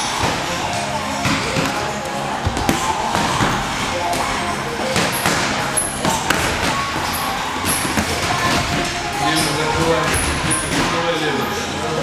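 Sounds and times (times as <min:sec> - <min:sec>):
background music: 0:00.0 - 0:12.0
boxing gloves thudding: 0:04.9 - 0:06.9.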